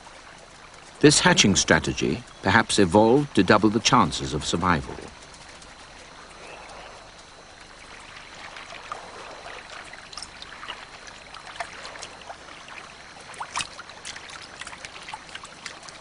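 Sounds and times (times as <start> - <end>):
small clicks and ticks: 0.0 - 16.0
water lapping and trickling: 0.0 - 16.0.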